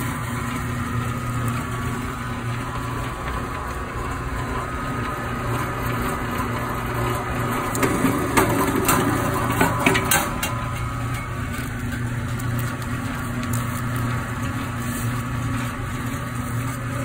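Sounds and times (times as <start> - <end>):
wire stripping machine motor hum: 0.0 - 17.0
sharp crackles and clicks: 7.6 - 16.9.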